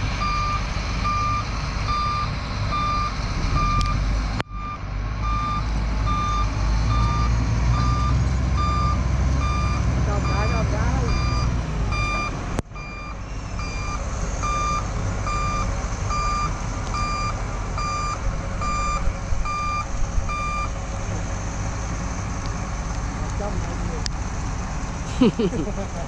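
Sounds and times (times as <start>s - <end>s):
truck reversing alarm beeping: 0.0s - 20.8s
diesel engines rumbling: 0.0s - 26.0s.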